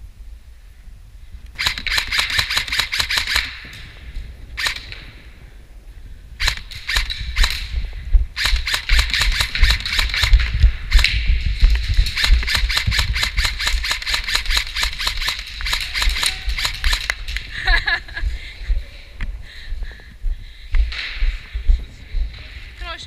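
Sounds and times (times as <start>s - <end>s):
airsoft rifles firing bursts: 1.6s - 4.0s, 4.6s - 5.2s, 6.4s - 7.8s, 8.4s - 17.4s.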